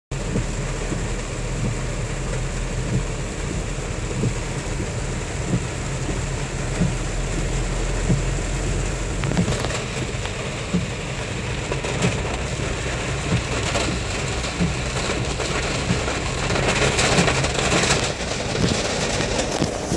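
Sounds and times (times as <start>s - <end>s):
engine and road rumble: 0.1s - 19.9s
rain on a car: 0.1s - 19.9s
low repeating thump: 0.2s - 1.9s, 2.8s - 11.0s.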